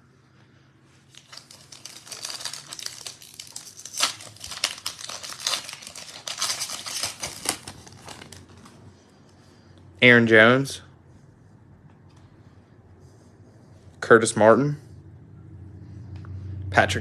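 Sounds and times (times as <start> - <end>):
foil wrapper crinkling and tearing: 1.1 - 8.8.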